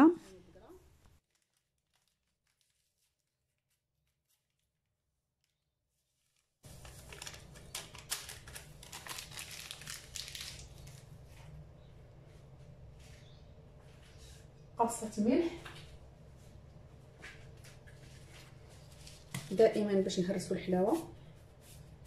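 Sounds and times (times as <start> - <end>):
paper sachet crinkling and tearing: 1.2 - 4.7, 6.2 - 11.3
low room hum: 6.6 - 22.0.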